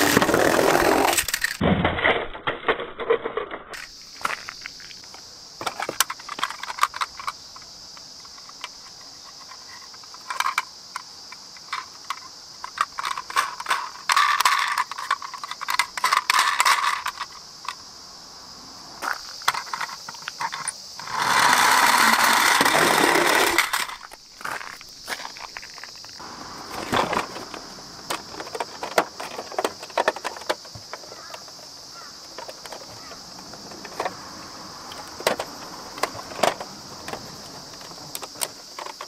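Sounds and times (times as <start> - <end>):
high insect drone: 0.0 - 1.6, 3.2 - 39.0
plastic toys clicking and rattling: 0.0 - 1.6, 5.6 - 17.8, 19.4 - 24.2, 26.8 - 33.1, 34.9 - 39.0.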